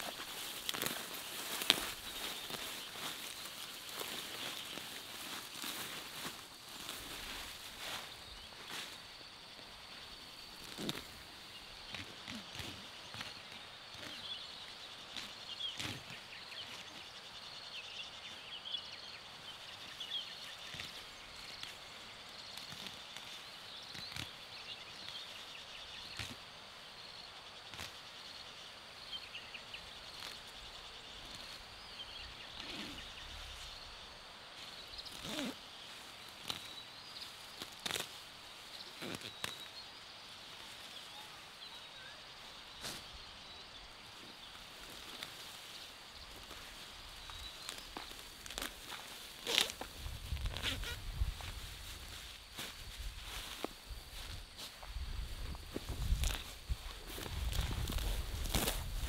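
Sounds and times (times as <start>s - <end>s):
small chirps: 40.6s - 54.8s.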